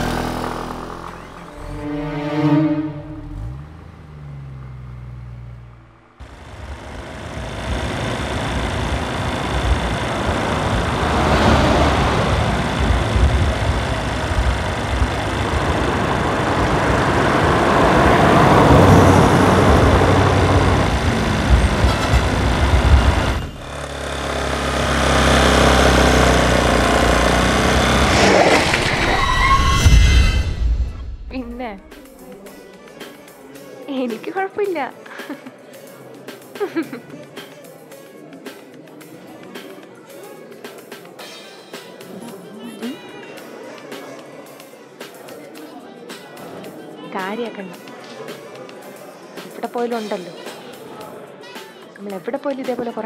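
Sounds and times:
vehicle engine and road noise: 0:00.0 - 0:32.9.

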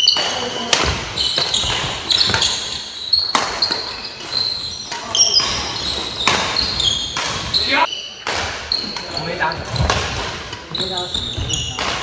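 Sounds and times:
racket striking shuttlecock: 0:00.0 - 0:07.5, 0:08.2 - 0:09.1, 0:11.7 - 0:12.0
shoes squeaking on wooden floor: 0:00.0 - 0:12.0.

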